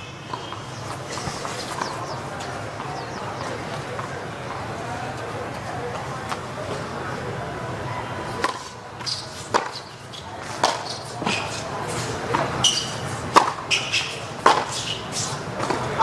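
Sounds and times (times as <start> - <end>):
tennis ball bouncing: 0.0 - 4.7, 8.4 - 16.0
tennis ball struck by rackets: 8.4 - 16.0.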